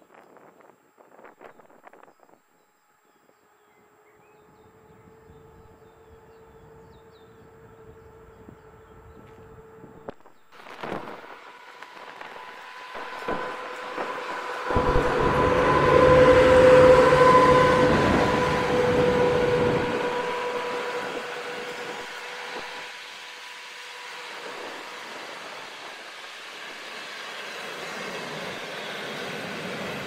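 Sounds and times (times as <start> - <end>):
electric locomotive humming: 0.2 - 30.0
train wheels rumbling on rail: 10.6 - 30.0.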